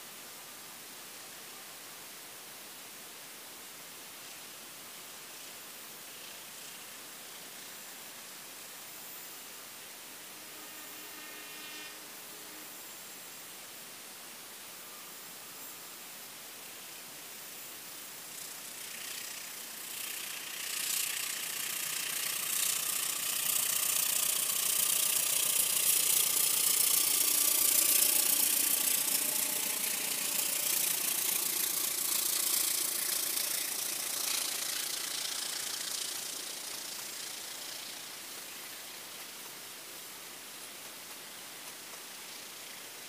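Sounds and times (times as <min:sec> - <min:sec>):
diesel locomotive engine under load: 0:10.1 - 0:12.7, 0:18.4 - 0:38.5.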